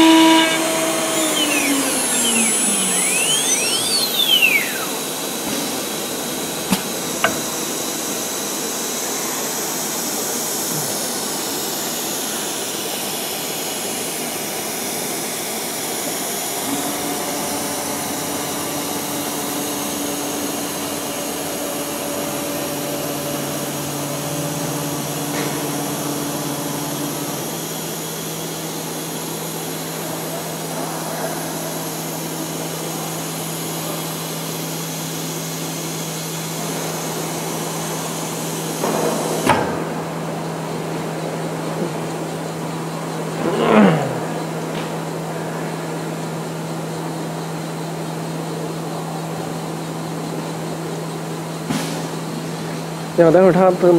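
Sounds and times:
low hums: 0.0s - 8.1s
wood router whining: 0.0s - 40.3s.

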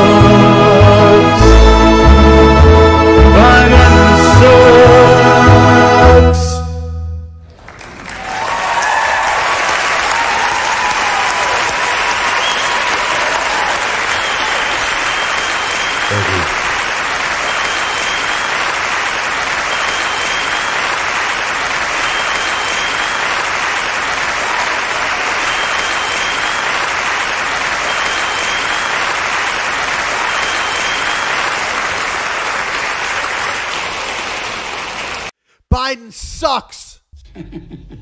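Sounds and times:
audience applause: 7.6s - 35.3s.

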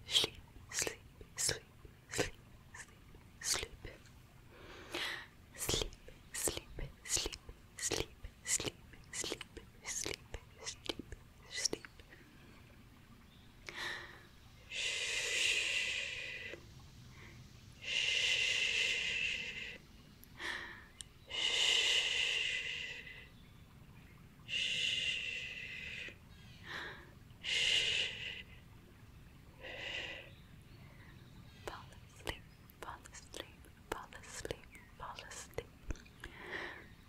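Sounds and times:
faint mouth clicks: 0.1s - 4.0s, 4.9s - 12.1s, 31.7s - 36.4s.

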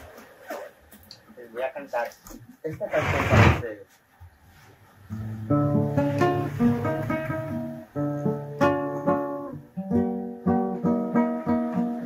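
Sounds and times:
classical guitar chords: 5.1s - 12.0s.

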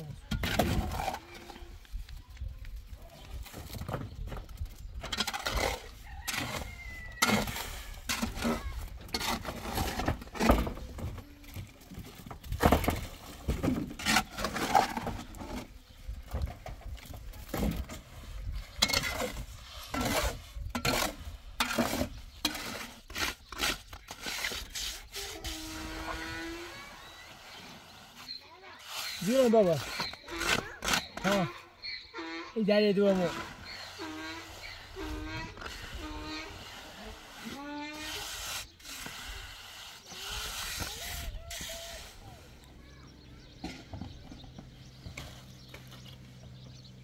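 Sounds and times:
trowel scraping and knocking metal: 18.8s - 26.2s, 28.9s - 31.6s.

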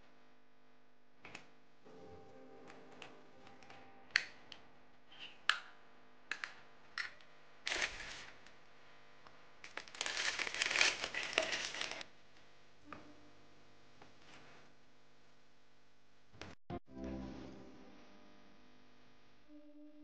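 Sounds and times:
plastic bag crinkling: 7.7s - 8.3s, 9.6s - 12.0s.

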